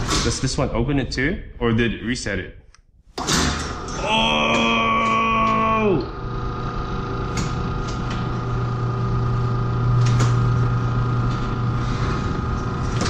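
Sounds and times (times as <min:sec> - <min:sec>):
garage door opener motor hum: 0:03.1 - 0:13.0.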